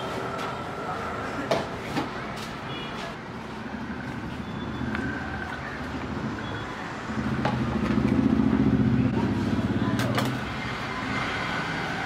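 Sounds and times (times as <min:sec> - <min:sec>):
street traffic noise: 0:00.0 - 0:12.0
vehicle engine: 0:03.3 - 0:12.0.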